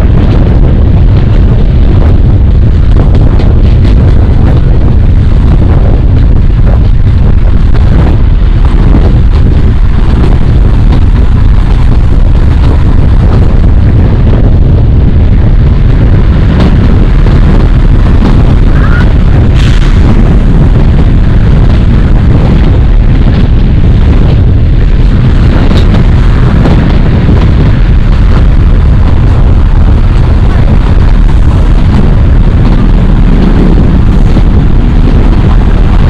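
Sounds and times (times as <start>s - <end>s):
train rumbling: 0.0s - 36.0s.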